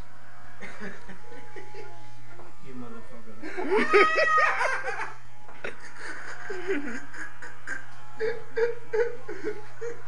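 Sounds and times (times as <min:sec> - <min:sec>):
electric hair clippers humming: 0:00.0 - 0:10.0
person laughing: 0:03.4 - 0:10.0.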